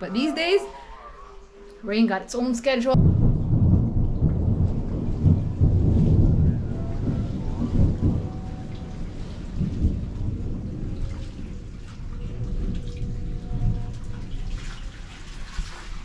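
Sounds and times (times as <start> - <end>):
rain falling: 0.0 - 16.0
low rumble: 2.9 - 15.2.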